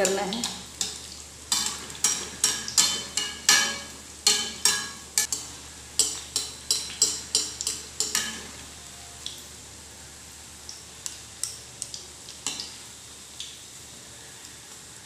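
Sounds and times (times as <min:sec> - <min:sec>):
fritters sizzling in hot oil: 0:00.0 - 0:15.0
steel spatula clinking against pan: 0:00.8 - 0:08.5.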